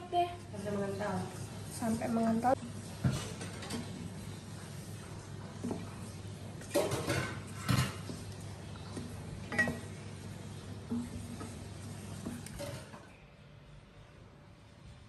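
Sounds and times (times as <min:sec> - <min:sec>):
spatula stirring sauce: 0:04.6 - 0:12.6.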